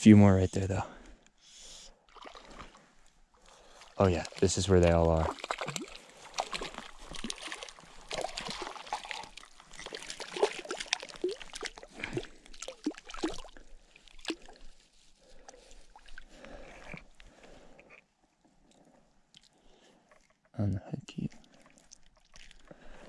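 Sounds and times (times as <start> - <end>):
fish splashing in shallow water: 2.0 - 17.1, 21.4 - 23.0.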